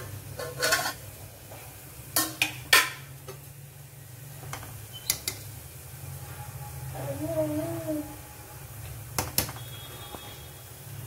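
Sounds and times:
metal spatula scraping pot: 0.3 - 1.0.

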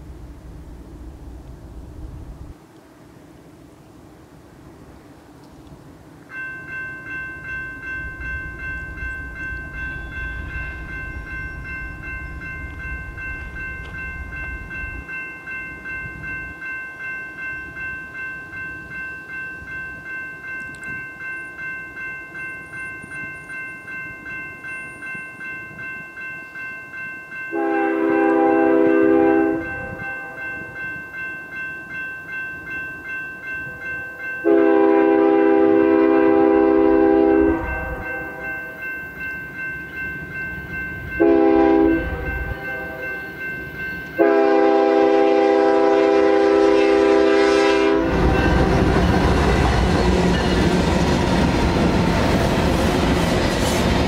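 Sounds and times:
crossing signal bell ringing: 6.3 - 54.0
locomotive horn blast: 27.6 - 30.4, 34.4 - 38.4, 41.2 - 43.2, 44.2 - 49.0.

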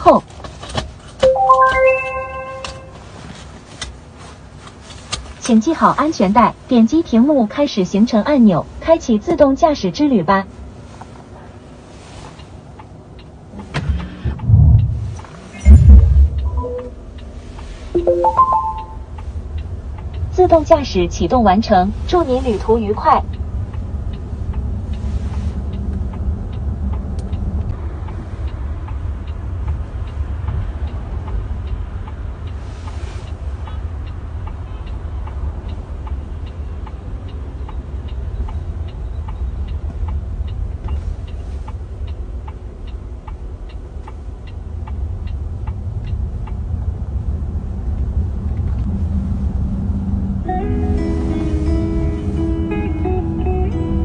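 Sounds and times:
road and tyre rumble in car: 0.0 - 1.2, 1.8 - 54.0
light regular ticking: 19.2 - 47.3.

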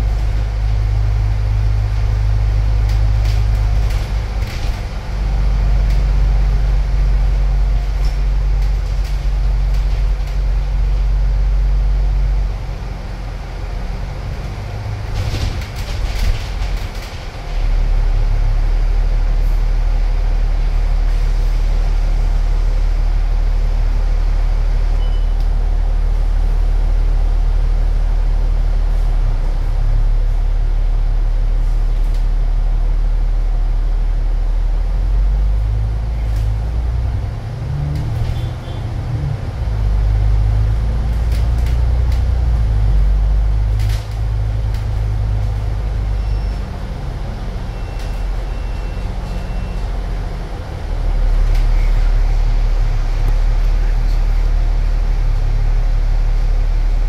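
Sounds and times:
bus engine drone: 0.0 - 57.0
short high beeps: 25.0 - 25.4.

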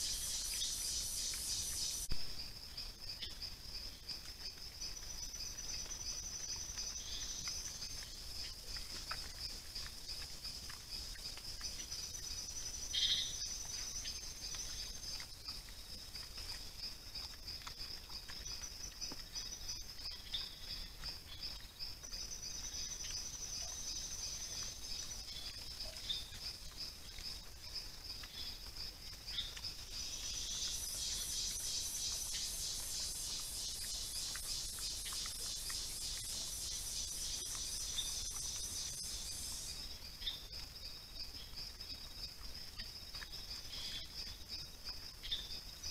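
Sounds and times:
night insects trilling: 0.0 - 45.9
higher buzzing insect trill: 30.0 - 39.8.

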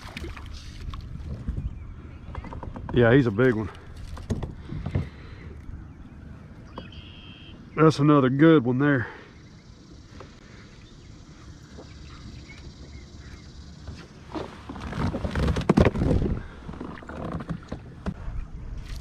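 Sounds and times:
wind rumble on microphone: 0.0 - 6.9, 15.0 - 19.0.

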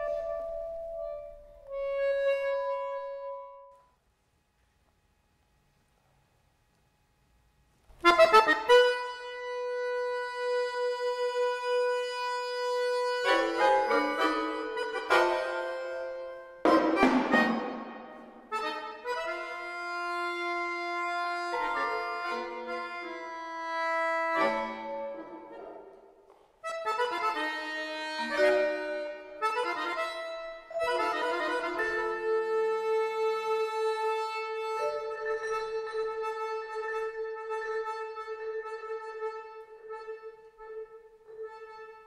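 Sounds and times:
accordion playing held chords: 0.0 - 3.8, 7.9 - 42.0
loud percussion stroke: 16.6 - 18.8.

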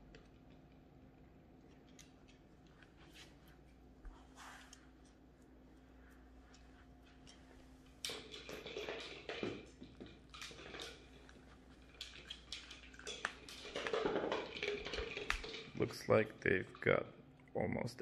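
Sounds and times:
puppies rustling fabric toy: 2.8 - 7.9.

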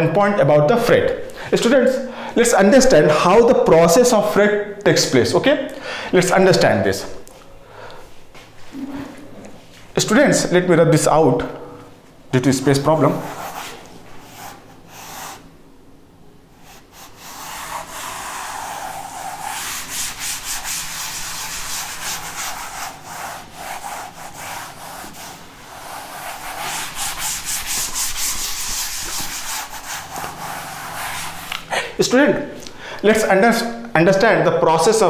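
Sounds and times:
eraser scrubbing chalkboard: 12.9 - 15.5, 16.6 - 31.8.

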